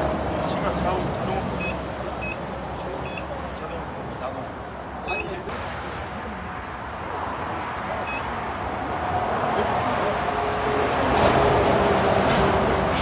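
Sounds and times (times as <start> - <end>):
diesel engine revving: 4.9 - 13.0.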